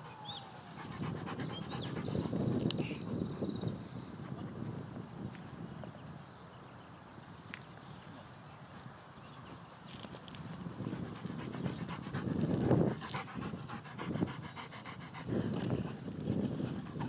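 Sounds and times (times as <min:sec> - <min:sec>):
large dog panting: 0:00.0 - 0:04.5, 0:10.7 - 0:17.0.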